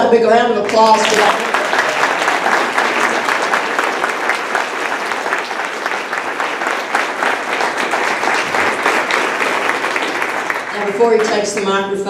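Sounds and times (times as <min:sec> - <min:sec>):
people applauding: 0:00.6 - 0:11.8.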